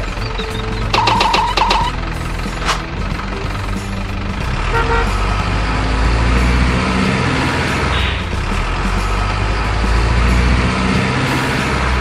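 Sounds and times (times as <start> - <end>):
heavy truck engine running: 0.0 - 12.0
horn toot: 4.6 - 5.3.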